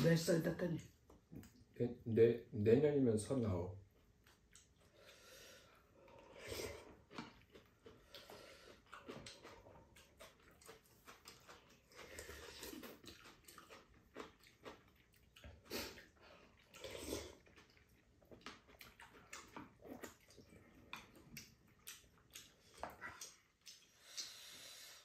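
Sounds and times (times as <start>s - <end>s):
chewing: 3.9s - 25.0s
people slurping soup: 5.0s - 7.2s, 15.5s - 17.6s.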